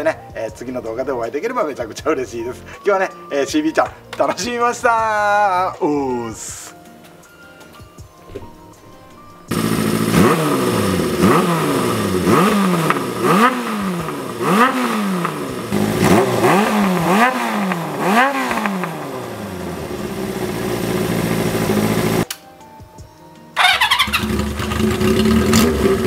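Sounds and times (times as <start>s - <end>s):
motorcycle engine idling: 9.5s - 22.2s, 23.6s - 26.0s
motorcycle engine revving: 9.5s - 22.2s, 23.6s - 26.0s.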